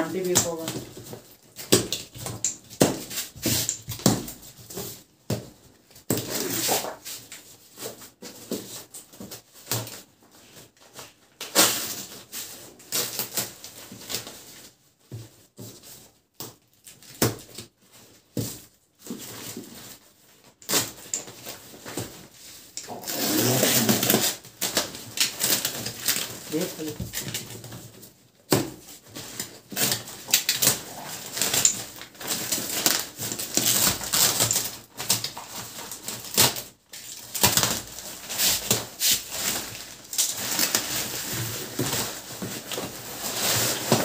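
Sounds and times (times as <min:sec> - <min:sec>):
plastic sack rustling: 0:17.8 - 0:44.0.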